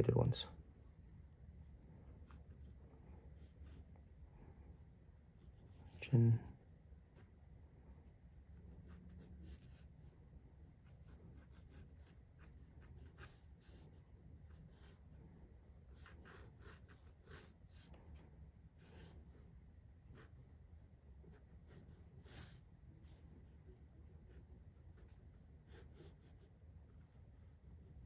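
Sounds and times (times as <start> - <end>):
low steady hum: 0.0 - 28.0
pencil scratching on paper: 8.3 - 10.1, 10.7 - 15.2, 15.8 - 20.5, 21.2 - 23.2, 24.1 - 28.0.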